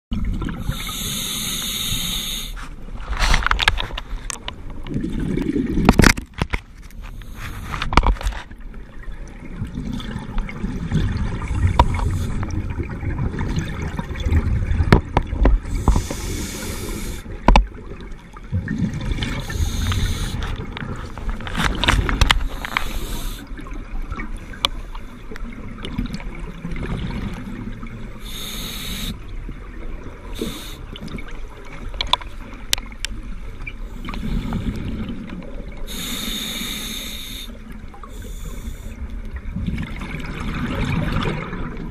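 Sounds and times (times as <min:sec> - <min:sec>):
regulator bubbles hissing: 0:00.1 - 0:02.7, 0:09.6 - 0:31.5, 0:33.7 - 0:41.9.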